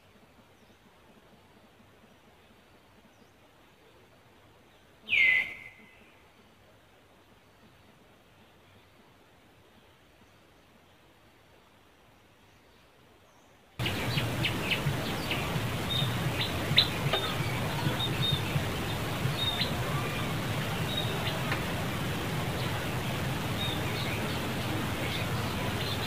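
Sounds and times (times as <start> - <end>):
low hum and hiss: 0.0 - 26.0
high bird chirps: 13.8 - 20.2.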